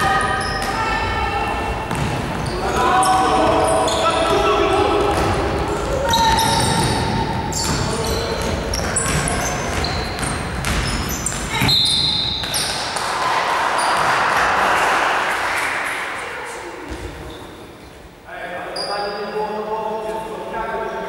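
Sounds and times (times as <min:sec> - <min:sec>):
people calling out: 0:00.0 - 0:08.2
sneakers squeaking on wooden floor: 0:00.0 - 0:13.0, 0:16.8 - 0:18.1
basketball bouncing: 0:01.9 - 0:02.6, 0:04.3 - 0:12.8.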